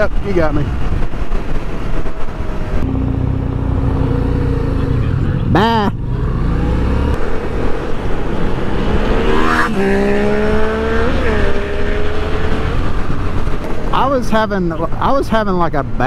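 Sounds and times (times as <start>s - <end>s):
motorcycle engine revving: 2.3s - 13.9s.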